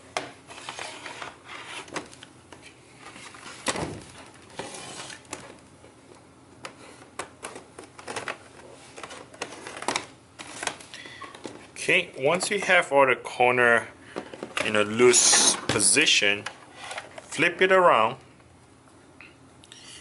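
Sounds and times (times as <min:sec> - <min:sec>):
laptop scraping on table: 0:04.6 - 0:05.2.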